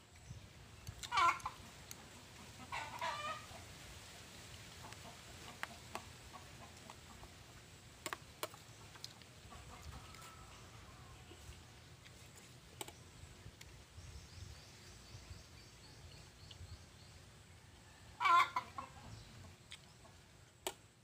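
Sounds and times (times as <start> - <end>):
chicken clucking: 1.0 - 3.8, 4.8 - 7.7, 8.5 - 12.6, 17.8 - 20.4.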